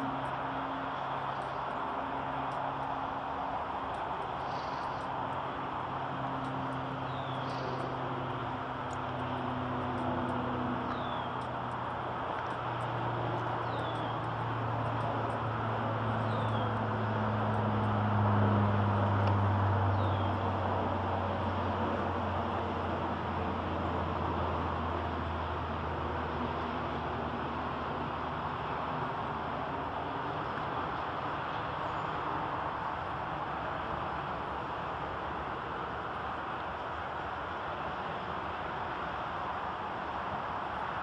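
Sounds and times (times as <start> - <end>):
distant traffic drone: 0.0 - 41.0
rain falling on water: 0.0 - 41.0
bird chirping: 7.1 - 7.9, 10.9 - 11.4, 13.6 - 14.3, 16.1 - 16.8, 19.9 - 20.4.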